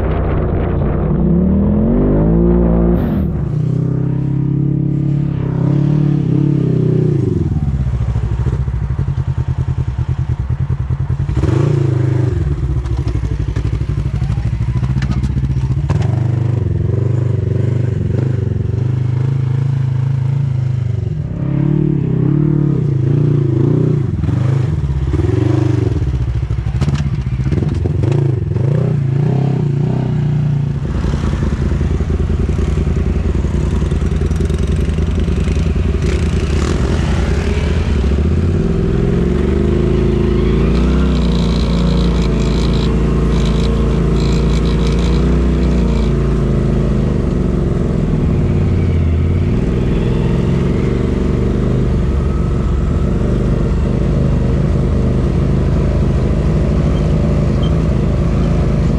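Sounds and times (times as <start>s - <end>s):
engine revving with clatter: 14.8s - 58.9s
engine running steadily: 30.3s - 58.9s.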